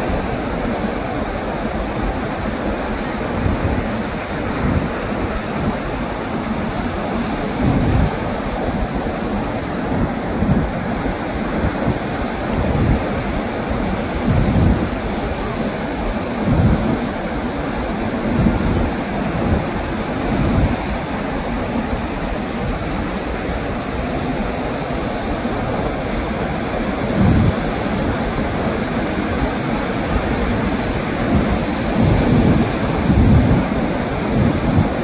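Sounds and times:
ocean surf over rocks: 0.0s - 35.0s
wind buffeting microphone: 0.0s - 35.0s.

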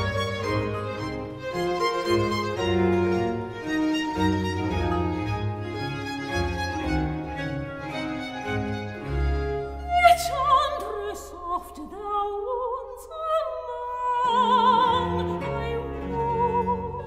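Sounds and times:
string orchestra: 0.0s - 17.0s
soprano singing with vibrato: 9.8s - 17.0s.

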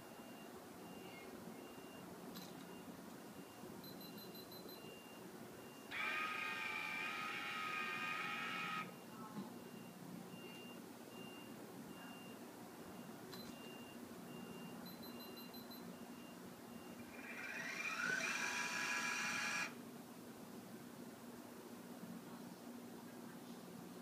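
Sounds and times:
faint high beep: 0.0s - 5.9s, 8.9s - 17.1s
motors whining: 5.9s - 8.9s, 17.0s - 19.8s.

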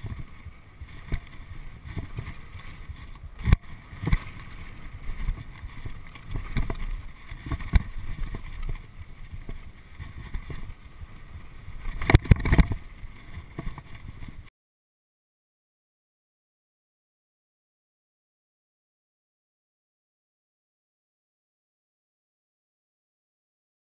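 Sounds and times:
bike rattling: 0.0s - 14.5s
wind buffeting microphone: 0.0s - 14.5s.

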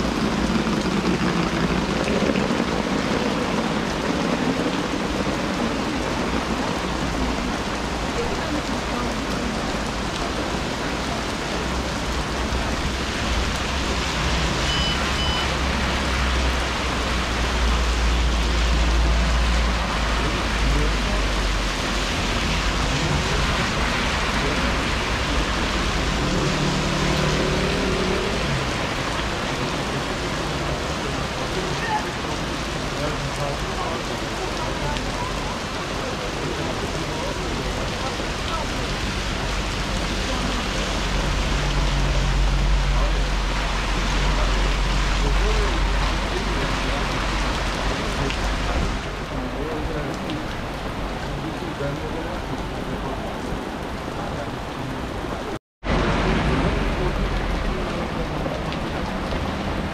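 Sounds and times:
short double beep: 14.6s - 15.5s.

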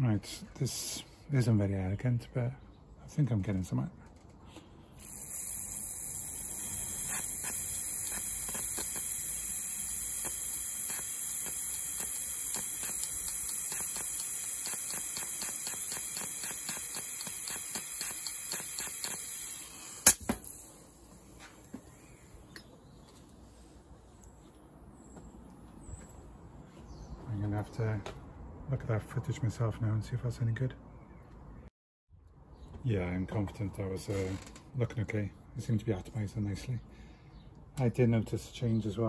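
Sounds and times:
fuel injector clicking: 5.0s - 20.6s
aerosol spray hissing: 5.0s - 21.4s
sharp click: 10.2s - 19.3s, 20.0s - 20.6s.

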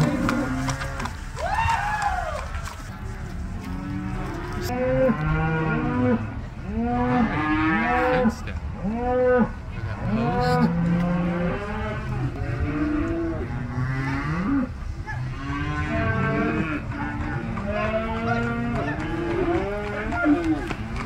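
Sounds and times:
cattle mooing: 0.0s - 1.1s, 3.6s - 14.7s, 15.3s - 20.6s.

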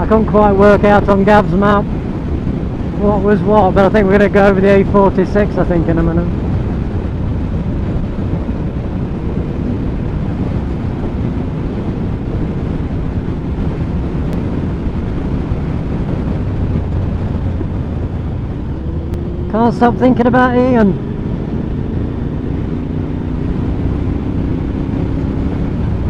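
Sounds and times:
wind rushing over microphone: 0.0s - 26.0s
motorcycle engine running: 5.8s - 26.0s.

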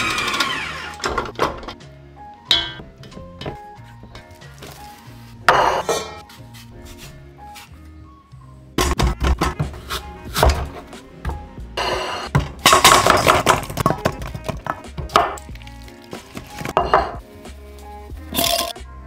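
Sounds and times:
background music: 0.0s - 19.0s
apples dropping into metal bowl: 12.4s - 17.2s, 18.3s - 18.8s.

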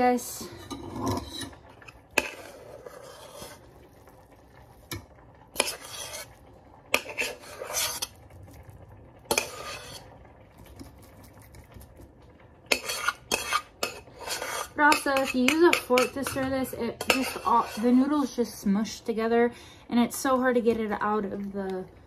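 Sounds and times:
spoon clinking in a saucepan: 12.7s - 17.8s.

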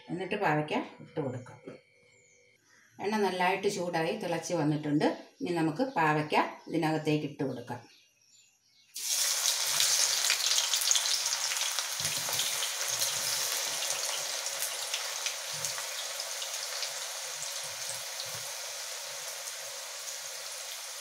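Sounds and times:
vegetables sizzling in hot oil: 9.0s - 21.0s.

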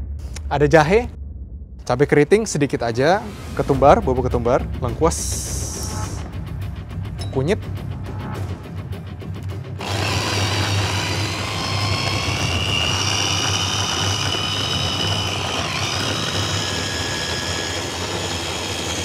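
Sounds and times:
electric chopper motor whining: 9.8s - 19.0s.

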